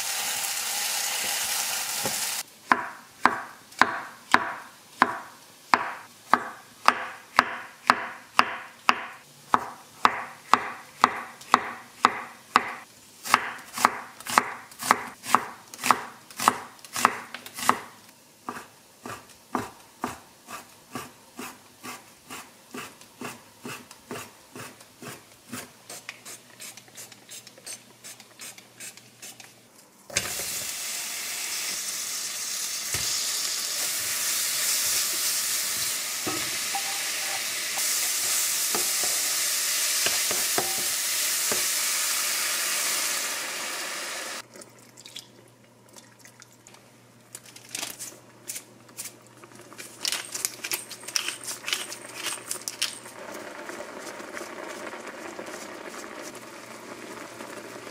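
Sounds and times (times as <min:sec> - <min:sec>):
food sizzling in frying pan: 0:00.0 - 0:02.5, 0:30.1 - 0:44.4, 0:51.9 - 0:57.9.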